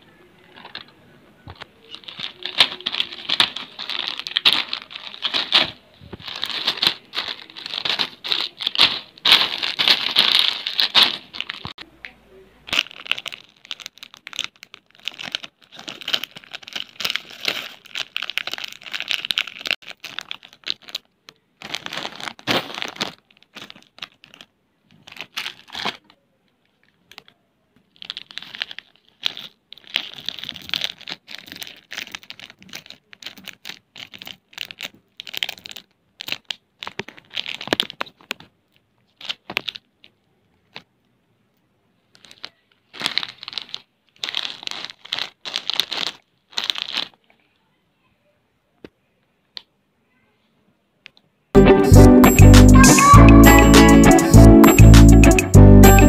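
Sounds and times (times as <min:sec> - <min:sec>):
plastic wrappers crinkling: 0:00.4 - 0:41.2, 0:41.9 - 0:47.7.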